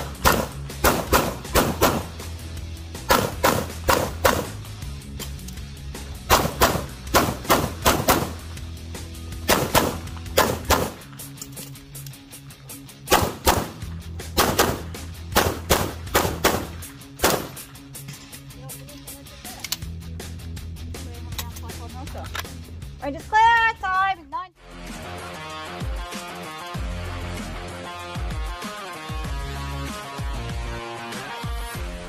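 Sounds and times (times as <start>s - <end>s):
pistol shots: 0.0s - 2.2s, 3.1s - 4.6s, 6.3s - 8.5s, 9.4s - 11.2s, 13.1s - 17.7s
background music with bass: 0.0s - 32.0s.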